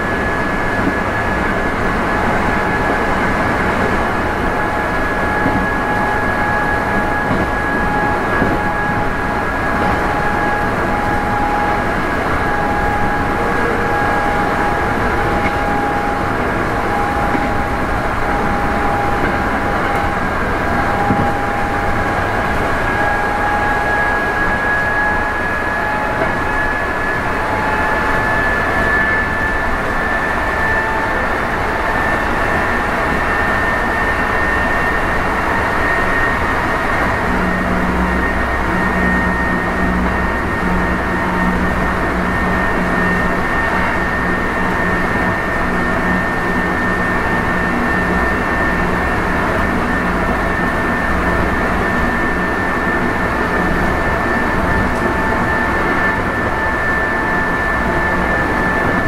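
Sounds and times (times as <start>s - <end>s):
train traction motors whining: 0.0s - 59.0s
wheels rumbling on rails: 0.0s - 59.0s.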